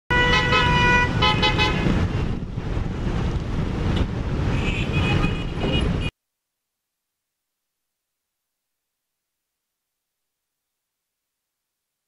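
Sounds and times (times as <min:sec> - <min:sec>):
high-pitched horn blasts: 0:00.1 - 0:01.9
car horns honking: 0:00.1 - 0:02.1, 0:04.5 - 0:06.1.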